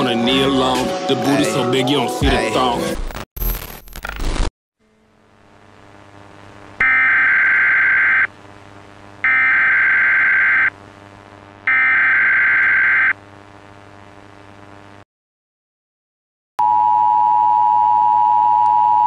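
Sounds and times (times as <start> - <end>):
faint steady hum: 4.8 - 15.0.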